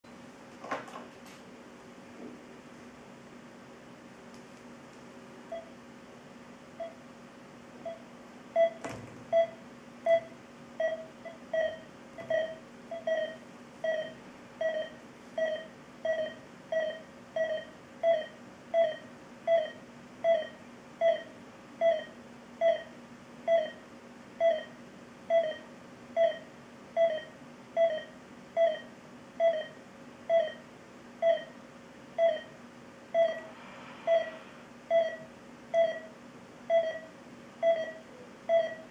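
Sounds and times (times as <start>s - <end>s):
patient monitor pulse beeps: 5.5s - 5.8s, 6.8s - 7.0s, 7.8s - 31.6s, 32.2s - 38.9s.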